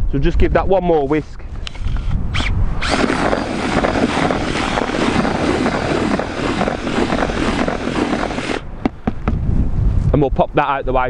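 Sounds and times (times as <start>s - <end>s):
cordless drill mixing in bucket: 2.8s - 8.6s.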